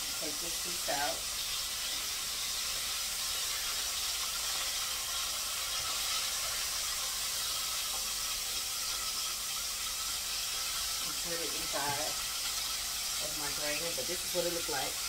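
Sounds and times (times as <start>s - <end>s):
oil sizzling in deep fryer: 0.0s - 15.0s.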